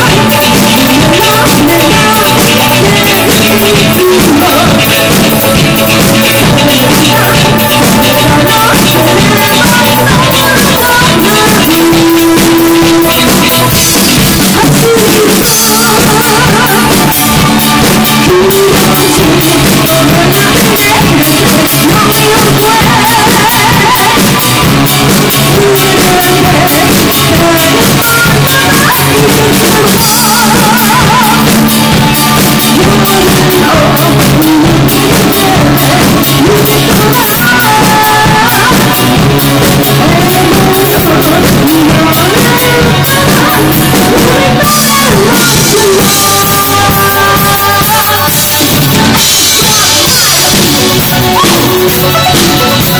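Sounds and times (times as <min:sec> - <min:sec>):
drum kit: 0:00.0 - 0:52.9
electric guitar: 0:00.0 - 0:52.9
woman singing lead: 0:00.0 - 0:52.9.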